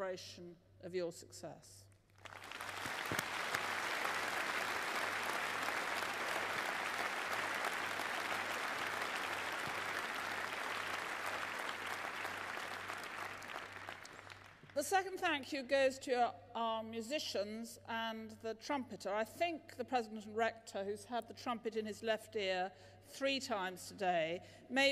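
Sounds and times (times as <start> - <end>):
large audience applauding: 2.2 - 14.7.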